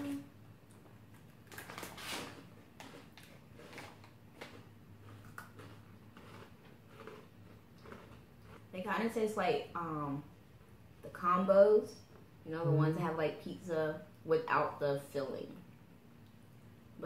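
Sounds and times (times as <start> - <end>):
breadsticks being chewed: 0.7 - 8.8
plastic snack bag rustling: 1.1 - 8.2.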